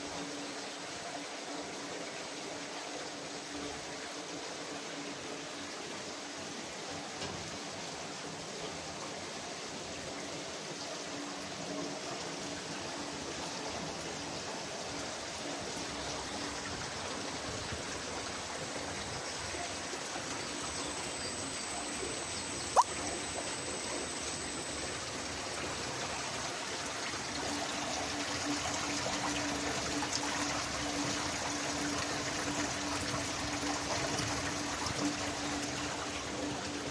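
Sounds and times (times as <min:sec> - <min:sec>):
water trickling: 0:00.0 - 0:36.9
low steady hum: 0:13.6 - 0:36.9.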